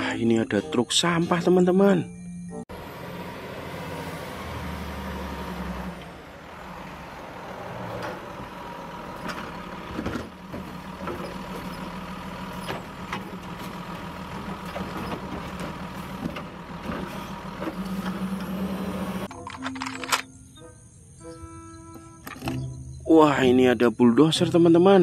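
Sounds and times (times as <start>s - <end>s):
garbage truck diesel engine running: 2.5s - 19.3s
hydraulic arm lifting trash cart: 4.5s - 19.3s.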